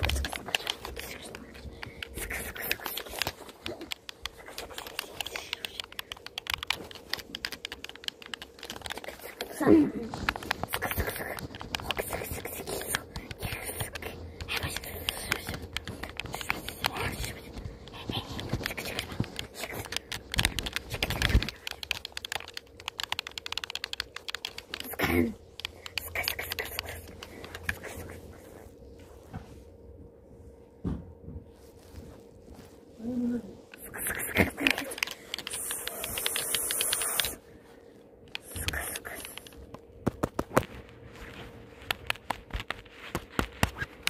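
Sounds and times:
rapid keyboard typing: 0:00.0 - 0:28.4, 0:33.7 - 0:37.4, 0:38.3 - 0:40.7, 0:41.8 - 0:44.0
keyboard key clicks: 0:02.0 - 0:09.5, 0:18.6 - 0:25.0, 0:34.4 - 0:37.4.

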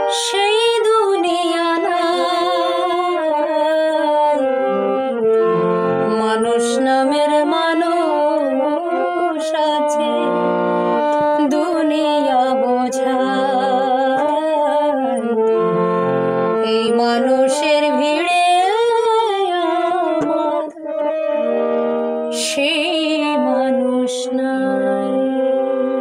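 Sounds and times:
woman singing: 0:00.0 - 0:05.3, 0:06.0 - 0:15.5, 0:16.6 - 0:21.1, 0:22.3 - 0:26.0
harmonium chords: 0:00.0 - 0:26.0.

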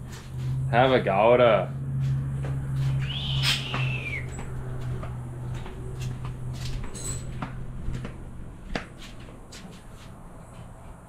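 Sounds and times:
steady low hum: 0:00.0 - 0:11.0
high animal call gliding down: 0:02.9 - 0:04.4.

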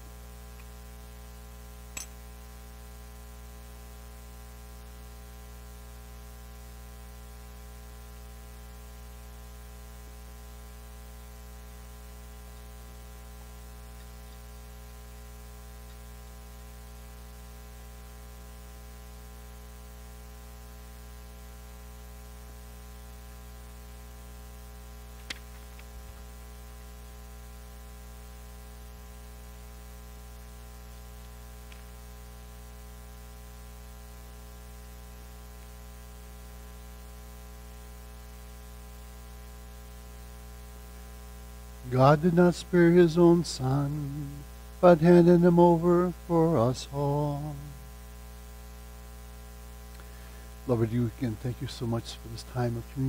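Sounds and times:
electrical mains hum: 0:00.0 - 0:53.0
faint static hiss: 0:00.0 - 0:53.0
sharp click: 0:01.9 - 0:02.2
faint ticks: 0:15.8 - 0:16.1.

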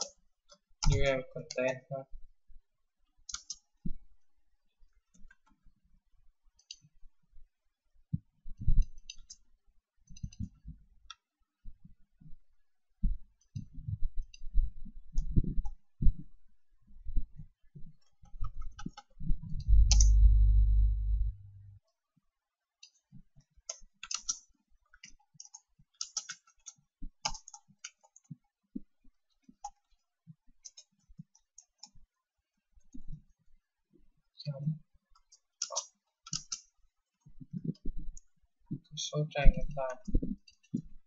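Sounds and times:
computer keyboard typing: 0:03.2 - 0:03.7, 0:08.8 - 0:09.4, 0:18.0 - 0:21.3, 0:23.7 - 0:28.4, 0:30.6 - 0:32.0, 0:35.1 - 0:38.0
mouse clicks: 0:03.3 - 0:03.7, 0:18.0 - 0:21.3, 0:23.7 - 0:28.4, 0:35.2 - 0:36.7
steady low hum: 0:19.6 - 0:21.8.

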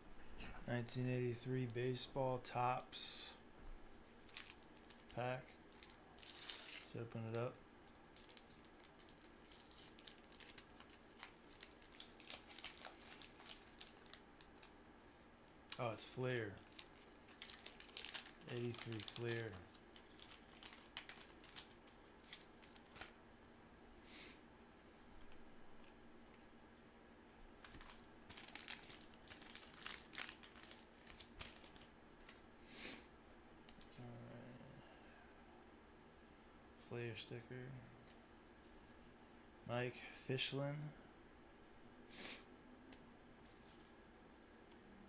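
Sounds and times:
wax paper wrapper crinkling: 0:04.1 - 0:23.2, 0:27.6 - 0:32.4.

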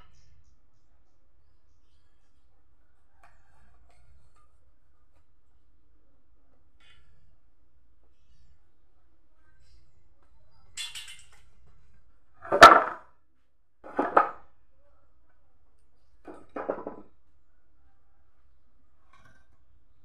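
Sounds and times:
wooden boards knocking together: 0:12.4 - 0:13.1, 0:13.8 - 0:14.5, 0:16.2 - 0:17.1.

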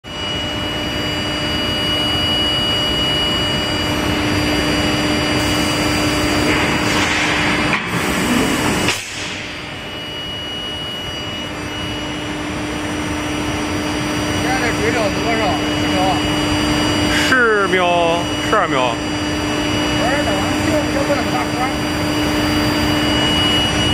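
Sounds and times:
constant low hum: 0:00.1 - 0:23.9
industrial machinery din: 0:03.4 - 0:23.9
thin steady high tone: 0:09.8 - 0:23.9.

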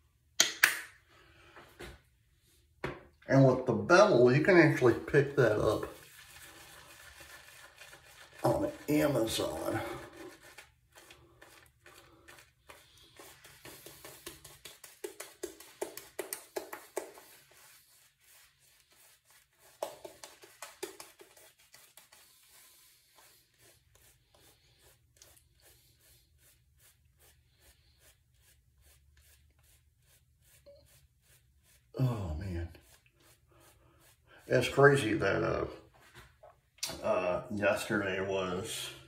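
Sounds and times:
shaving brush scratchy strokes: 0:04.0 - 0:36.3.

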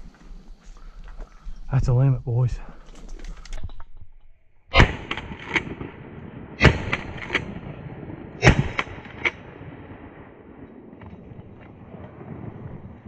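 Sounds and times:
shotgun shots with echoes: 0:04.7 - 0:10.1.

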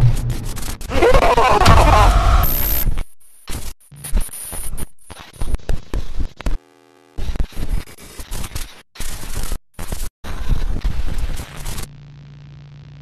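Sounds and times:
crackling digital static: 0:01.5 - 0:02.8
short buzzing tone: 0:01.7 - 0:02.9.

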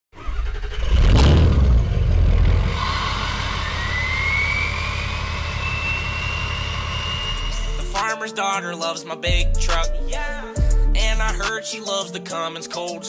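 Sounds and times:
truck engine revving: 0:00.2 - 0:08.0
high whistle rising in pitch: 0:02.6 - 0:08.0.

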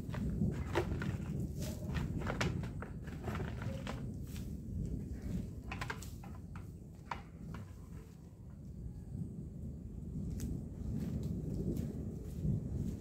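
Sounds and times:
soil tipped onto ground: 0:00.0 - 0:08.2
wind rumble on microphone: 0:00.0 - 0:13.0
footsteps: 0:10.3 - 0:13.0.

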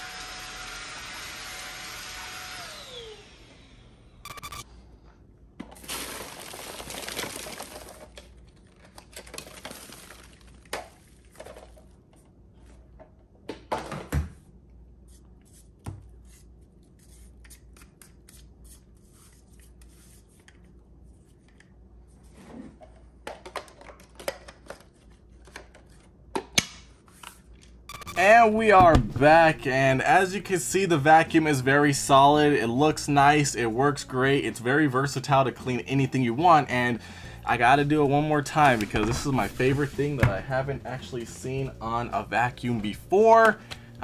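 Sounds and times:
dust pouring into plastic bag: 0:05.8 - 0:08.1.

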